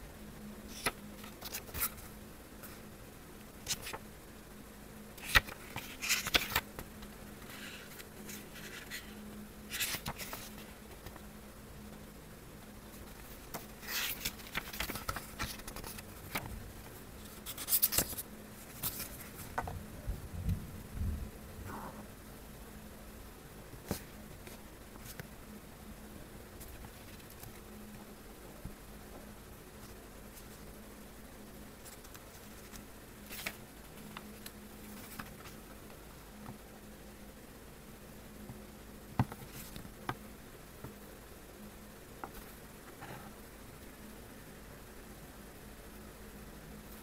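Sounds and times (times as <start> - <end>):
faint steady hum: 0.0 - 47.0
paper pages rustling: 0.7 - 2.8, 3.6 - 4.0, 5.2 - 11.2, 12.9 - 16.6, 17.2 - 19.7, 31.8 - 35.7.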